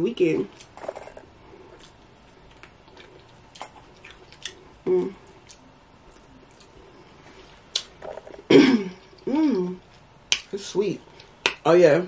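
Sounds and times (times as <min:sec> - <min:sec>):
wet eating smacks and clicks: 0:01.8 - 0:04.6, 0:07.6 - 0:08.0, 0:10.3 - 0:10.5
person humming mm: 0:04.8 - 0:05.3, 0:08.6 - 0:09.8.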